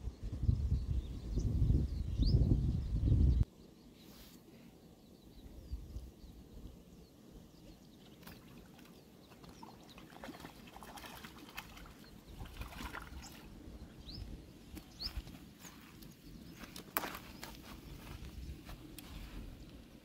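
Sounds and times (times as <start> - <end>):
small fish splashing: 8.1 - 13.6.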